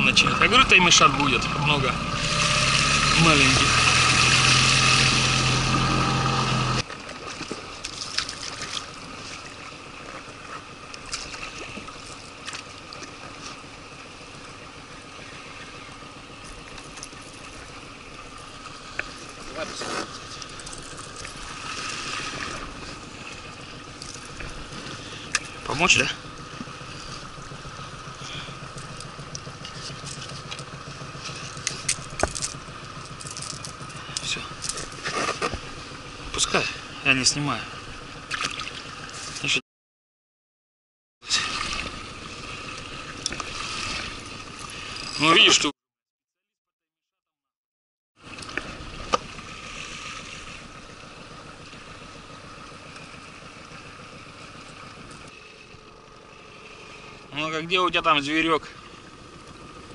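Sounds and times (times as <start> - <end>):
low mechanical hum: 0.0 - 36.8
boat outboard motor running: 0.0 - 39.6, 41.2 - 45.7, 48.2 - 59.9.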